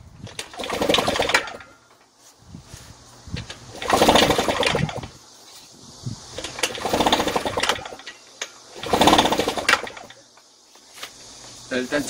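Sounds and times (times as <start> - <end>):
recoil starter rattling whirr: 0.1 - 1.9, 3.2 - 5.3, 5.9 - 10.4.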